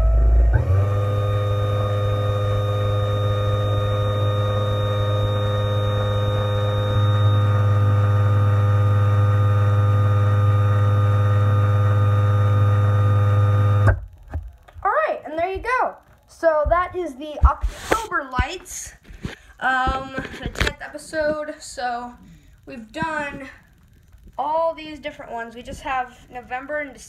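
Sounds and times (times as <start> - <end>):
garage door opener motor hum: 0.0 - 14.2.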